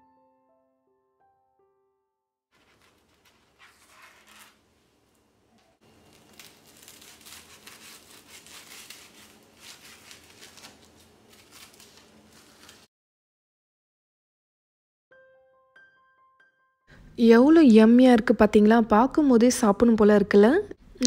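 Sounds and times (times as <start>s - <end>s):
knife crunching through toast: 2.6s - 4.6s, 5.9s - 12.9s
knife scraping: 2.6s - 4.6s, 5.9s - 12.9s.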